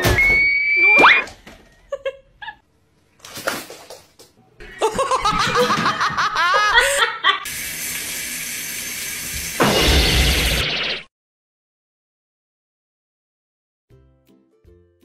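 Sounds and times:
person laughing hard: 4.6 - 7.5.

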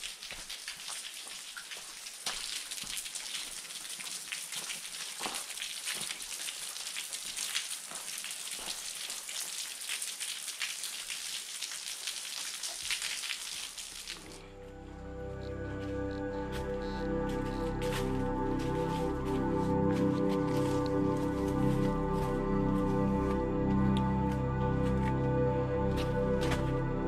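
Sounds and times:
water dripping off rock: 0.0 - 14.4
rain patter: 0.0 - 14.5, 16.5 - 25.2.

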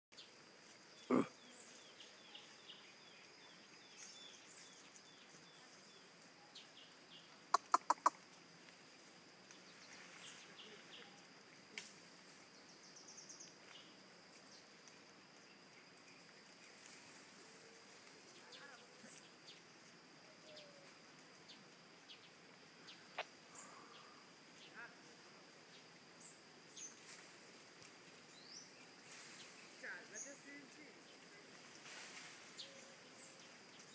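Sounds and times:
high insect drone: 0.2 - 33.9
soft chirps: 1.0 - 8.3.

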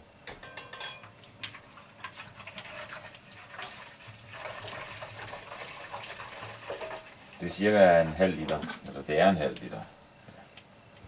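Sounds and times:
liquid pouring into container: 1.3 - 7.4.

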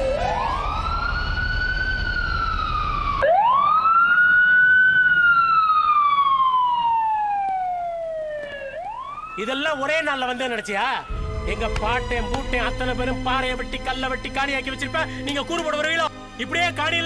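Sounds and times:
siren wailing: 0.0 - 13.0.

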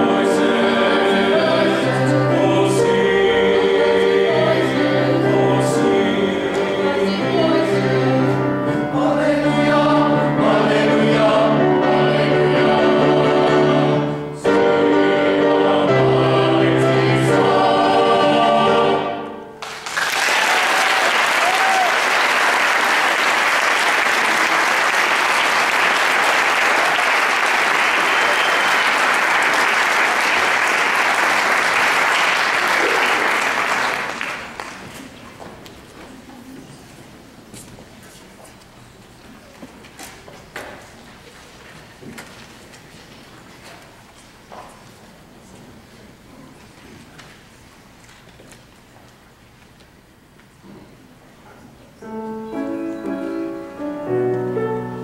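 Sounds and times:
men's choir singing: 0.0 - 19.4
piano accompaniment: 0.0 - 19.8, 52.0 - 55.0
audience applauding: 19.6 - 35.2.

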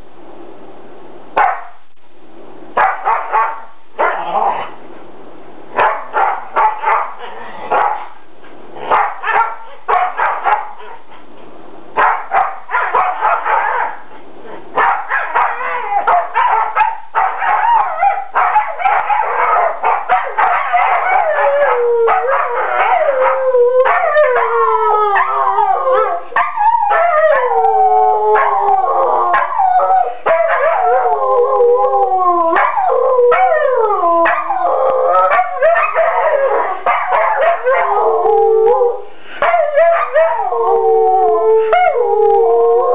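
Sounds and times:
dogs barking and yipping: 2.8 - 4.4, 5.8 - 8.2, 8.8 - 11.2, 12.0 - 27.6, 28.4 - 31.2, 32.6 - 38.4, 39.4 - 40.5
dogs howling: 14.8 - 42.9.

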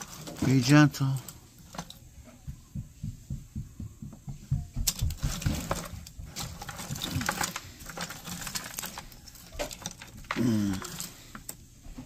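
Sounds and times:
small parts clattering in bucket: 0.0 - 2.1, 4.9 - 11.6
soft low thumps: 2.0 - 5.4.

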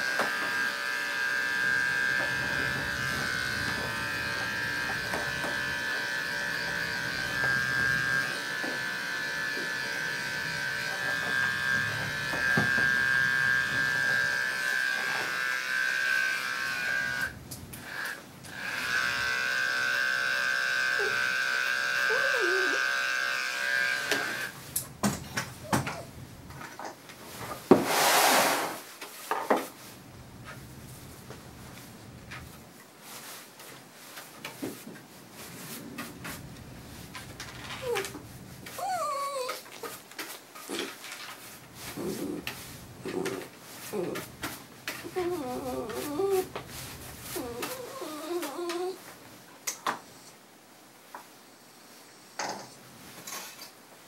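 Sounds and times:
dog clipper humming: 0.0 - 24.6.

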